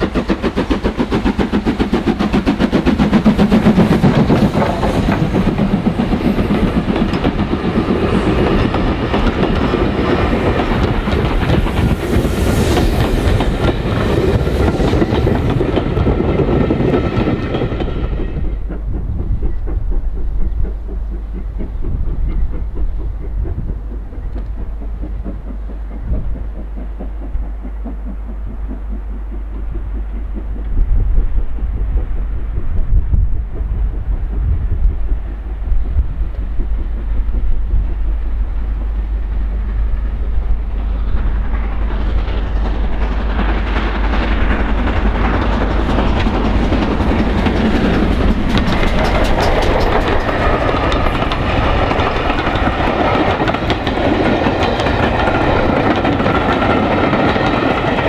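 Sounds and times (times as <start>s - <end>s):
train rumble and rail noise: 0.0s - 58.0s
wheels clicking over rail joints: 0.0s - 58.0s.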